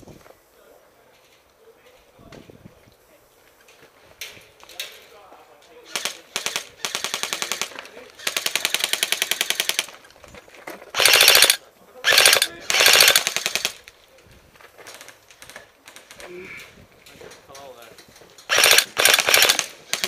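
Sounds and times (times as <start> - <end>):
airsoft guns firing bursts: 5.9 - 10.0, 10.9 - 13.9, 18.5 - 20.0.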